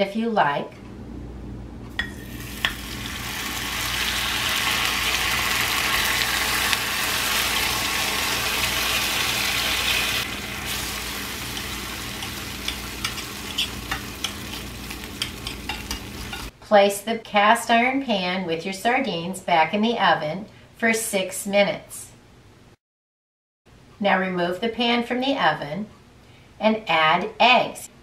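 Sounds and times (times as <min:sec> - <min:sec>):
knife tapping a pan: 0:02.0 - 0:02.8, 0:12.2 - 0:16.5
fish sizzling in a skillet: 0:02.1 - 0:16.5.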